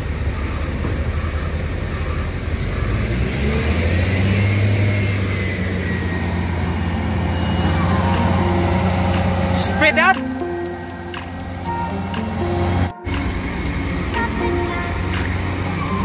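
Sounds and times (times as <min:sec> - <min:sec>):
heavy diesel engine running: 0:00.0 - 0:16.0
faint high whine: 0:04.3 - 0:16.0.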